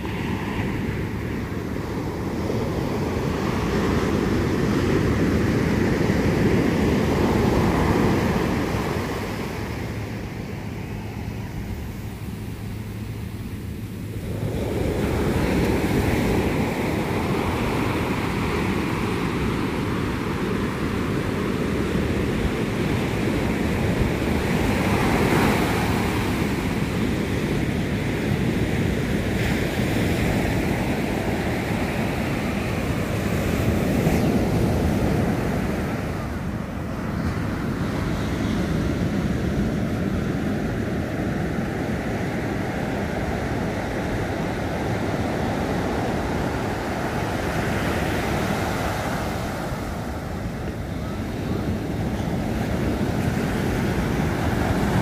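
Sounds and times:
ocean surf breaking on beach: 0.0s - 55.0s
wind buffeting microphone: 0.0s - 55.0s.

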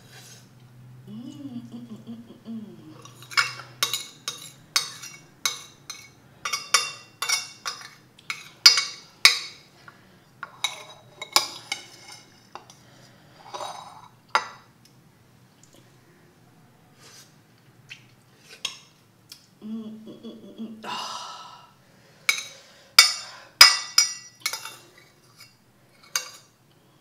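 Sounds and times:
spoon scraping ceramic plate: 3.0s - 9.5s, 10.4s - 12.7s, 13.4s - 14.5s, 22.3s - 26.6s.

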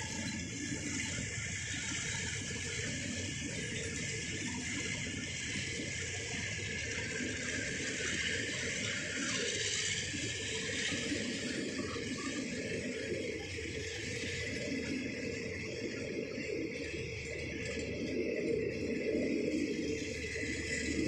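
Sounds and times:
train wheels running on rails: 0.0s - 16.1s.

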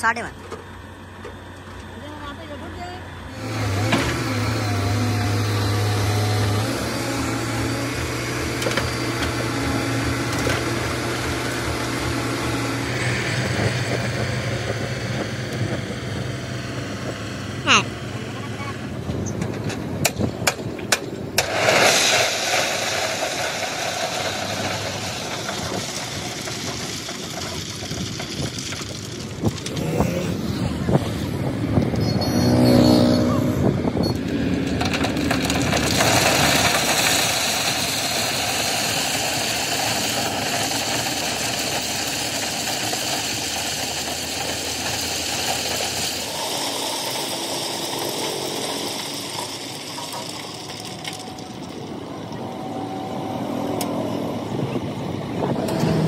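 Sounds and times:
diesel truck engine running: 0.0s - 56.0s
crushed stone pouring onto road: 21.4s - 30.2s, 34.3s - 52.0s.

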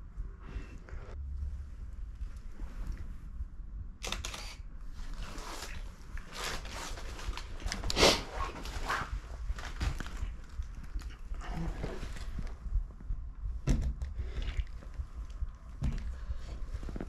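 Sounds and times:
camera mechanical clicks: 4.0s - 4.6s.

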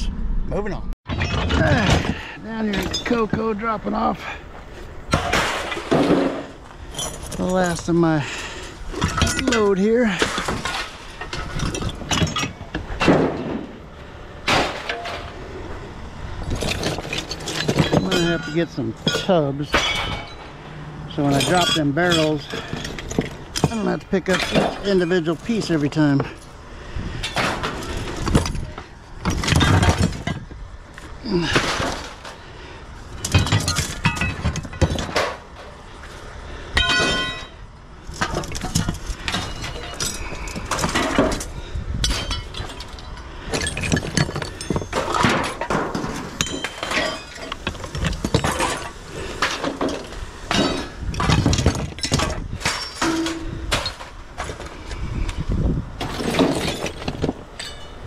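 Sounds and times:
scrap metal clanking onto pile: 5.1s - 13.8s, 14.4s - 15.4s, 16.5s - 26.5s, 27.2s - 30.5s, 31.3s - 32.4s, 33.2s - 35.8s, 36.8s - 54.7s, 56.0s - 58.0s
metal ringing: 17.3s - 26.5s, 36.8s - 41.4s, 49.8s - 54.1s, 57.5s - 58.0s.

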